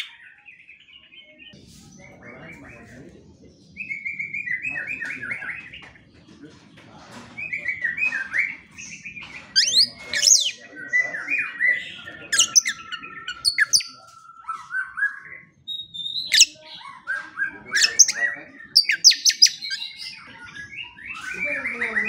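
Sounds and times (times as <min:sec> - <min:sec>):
bird singing whistles: 0:12.4 - 0:16.6, 0:17.8 - 0:22.0.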